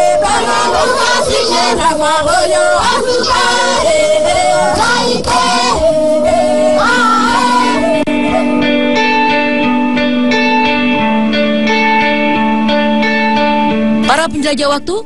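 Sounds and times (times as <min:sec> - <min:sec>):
group singing a chant: 0:00.0 - 0:08.7.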